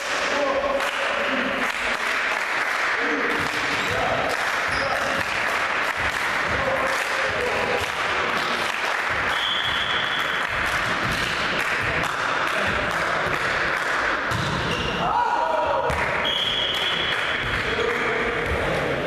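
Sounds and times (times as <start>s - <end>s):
crowd clapping and cheering: 0.0s - 14.2s.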